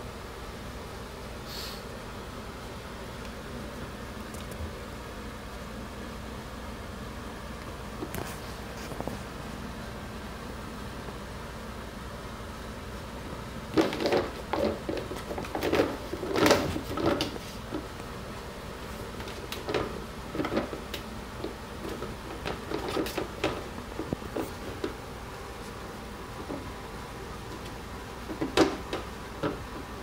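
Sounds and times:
plastic bin lid clattering: 13.7s - 17.9s, 19.2s - 25.0s, 27.5s - 30.0s.

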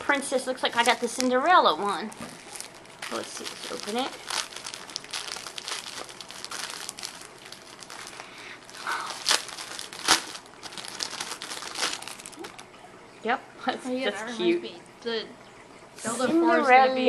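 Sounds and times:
plastic bag crinkling: 0.0s - 12.8s.

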